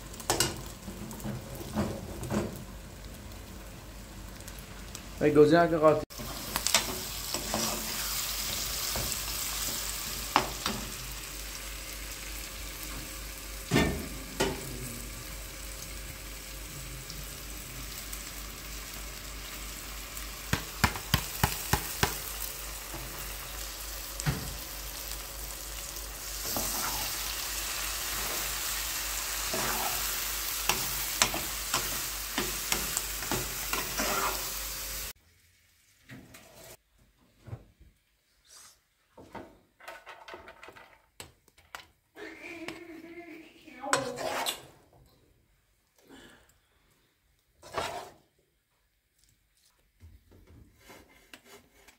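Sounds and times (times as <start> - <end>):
sizzling hiss: 2.4 - 35.4.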